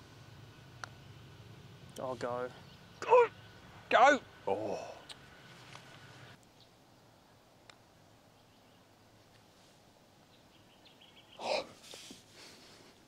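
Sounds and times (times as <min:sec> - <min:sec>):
faint bird chirps: 0:08.2 - 0:09.0, 0:10.3 - 0:11.7.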